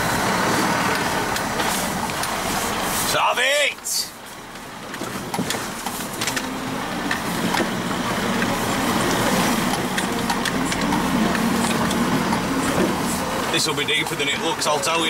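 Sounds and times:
car engine running: 0.0s - 15.0s
car body rattling: 4.4s - 15.0s.

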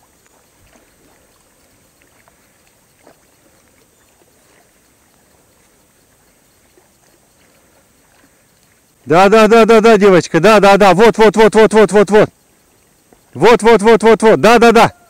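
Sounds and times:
water splashing and trickling: 0.0s - 15.0s
small clicks: 1.2s - 9.0s.

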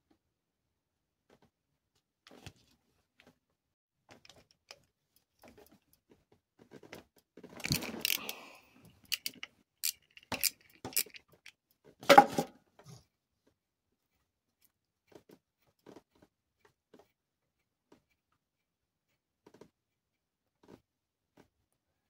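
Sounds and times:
ratchet wrench clicking: 9.1s - 11.2s.

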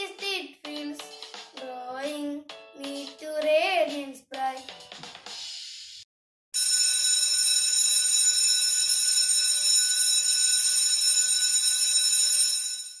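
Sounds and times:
electric bell ringing: 6.6s - 13.0s.

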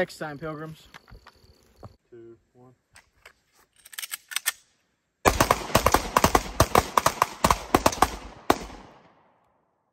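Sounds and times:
rapid handgun fire: 5.2s - 9.0s.

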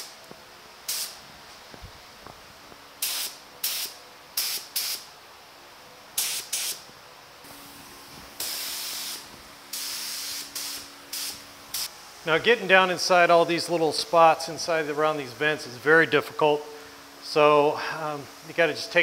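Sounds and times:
spray gun air hiss: 0.8s - 1.2s, 3.0s - 5.1s, 6.1s - 15.9s.

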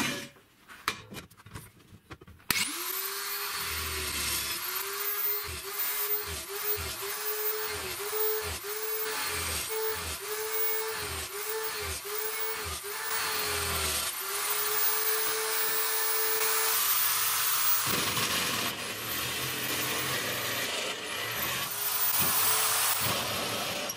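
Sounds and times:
electric drill whining: 2.5s - 23.9s.

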